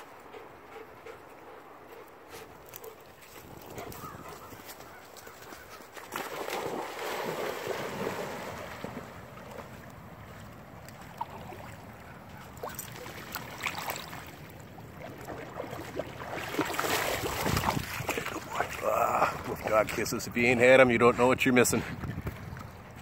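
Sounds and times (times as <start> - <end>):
dogs splashing through water: 2.4 - 20.3.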